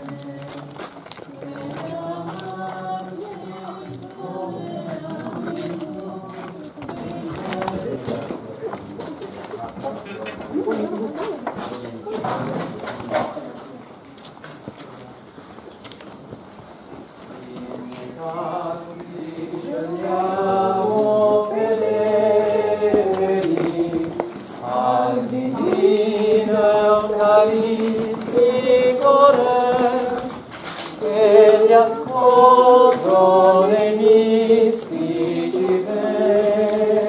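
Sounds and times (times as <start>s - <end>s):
group singing a hymn: 0.0s - 8.7s, 17.3s - 37.0s.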